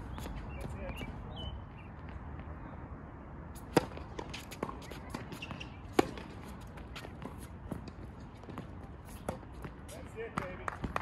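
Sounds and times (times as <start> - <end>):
tennis ball struck by racket: 3.6 - 11.0.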